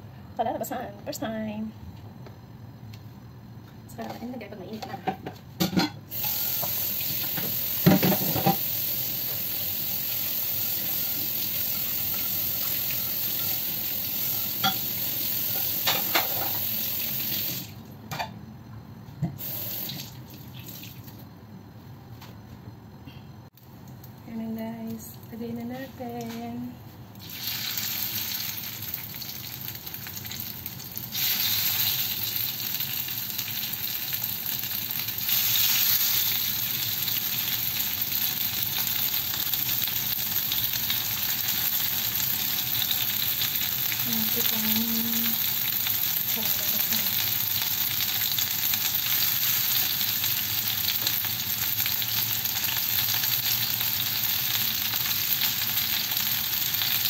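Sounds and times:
chicken sizzling on grill pan: 0:06.1 - 0:17.6, 0:27.2 - 0:57.0.

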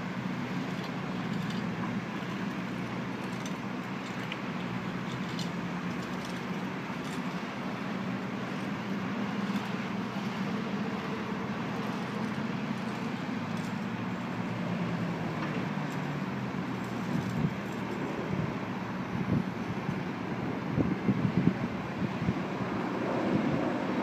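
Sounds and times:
excavator diesel engine humming: 0:00.0 - 0:24.0
passing road traffic: 0:00.0 - 0:24.0
wind buffeting microphone: 0:16.8 - 0:24.0.

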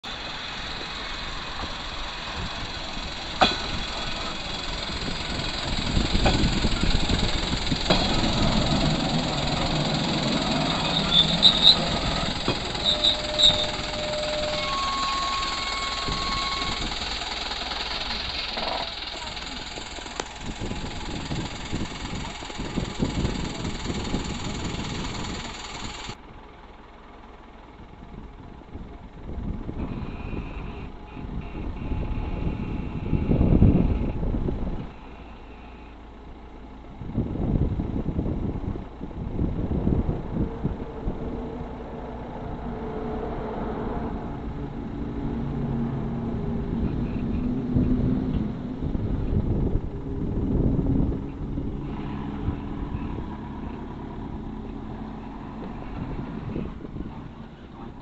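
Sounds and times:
diesel engine idling: 0:00.0 - 0:58.0
faint short beeps: 0:12.8 - 0:16.9.

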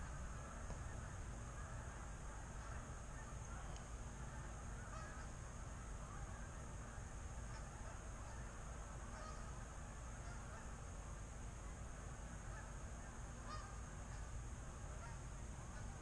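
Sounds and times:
geese honking in flight: 0:00.0 - 0:10.8, 0:11.6 - 0:16.0.

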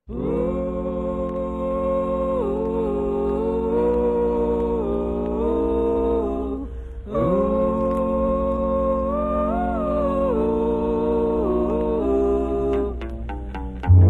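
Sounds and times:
voices singing in harmony: 0:00.0 - 0:13.8.

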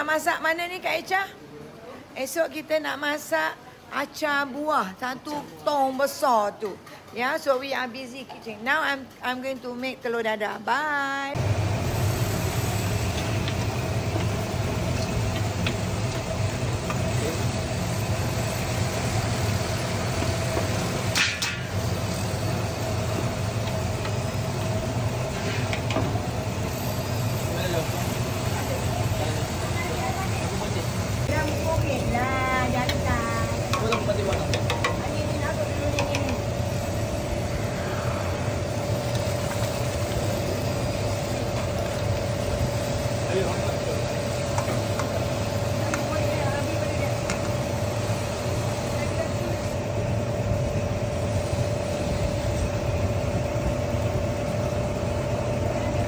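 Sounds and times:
motorised stirring arm humming: 0:11.4 - 0:56.0.

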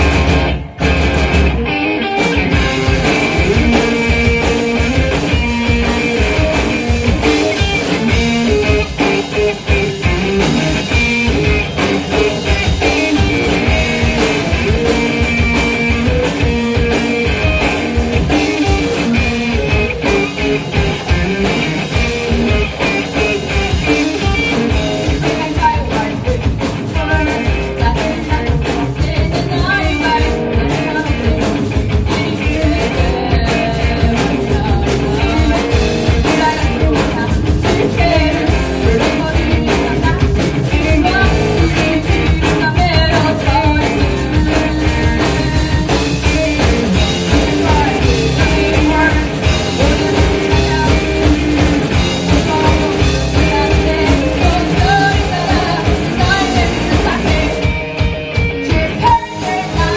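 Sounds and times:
drums: 0:00.0 - 0:59.9
electric guitars: 0:00.0 - 0:59.9
person singing: 0:23.8 - 0:59.9.

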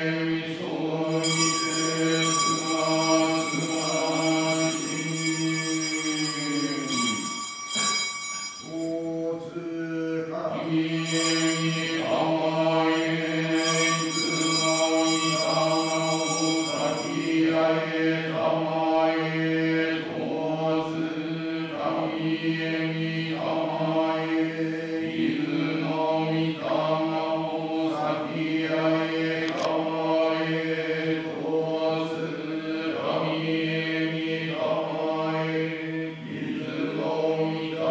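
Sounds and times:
man chanting a prayer: 0:08.8 - 0:11.1.

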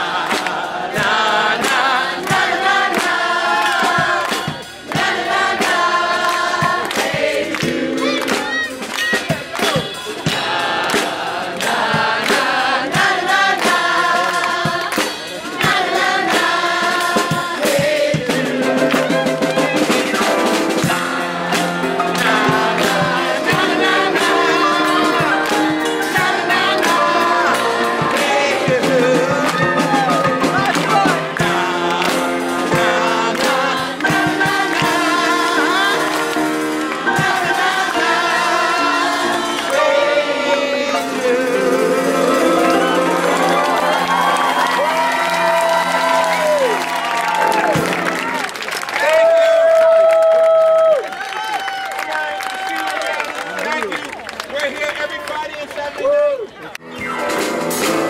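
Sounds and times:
grand piano: 0:18.3 - 0:48.7
man singing: 0:26.4 - 0:34.0.

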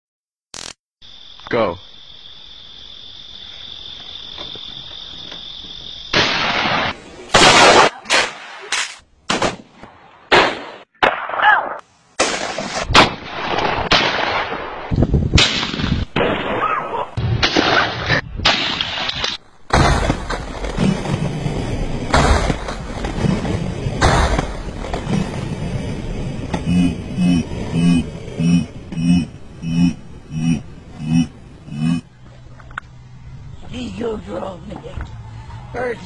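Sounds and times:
gunshots: 0:06.1 - 0:11.6, 0:12.2 - 0:25.6.

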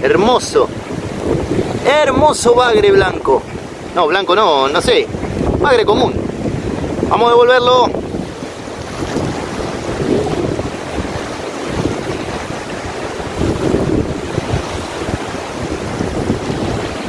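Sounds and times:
small waves washing on shore: 0:00.0 - 0:17.0
wind buffeting microphone: 0:00.0 - 0:17.0
heavy rain: 0:07.9 - 0:17.0.

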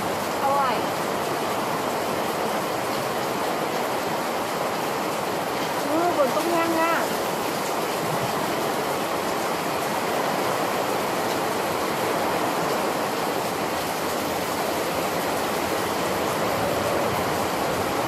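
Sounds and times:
heavy rain on fabric canopy: 0:00.0 - 0:18.0.

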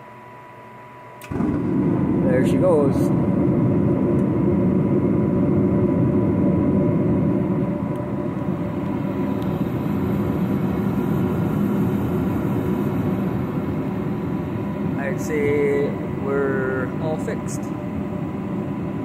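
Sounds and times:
faint steady whine: 0:00.0 - 0:19.0
gas burner flames rushing: 0:01.2 - 0:19.0.

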